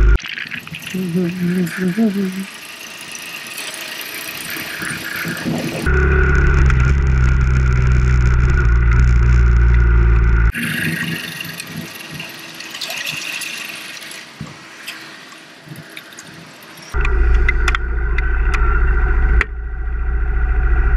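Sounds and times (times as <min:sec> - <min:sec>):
road noise with hiss: 0:00.0 - 0:06.3, 0:07.4 - 0:19.4
motorcycle engine running: 0:04.3 - 0:10.6
muffled low drone: 0:05.4 - 0:10.6, 0:17.0 - 0:20.9.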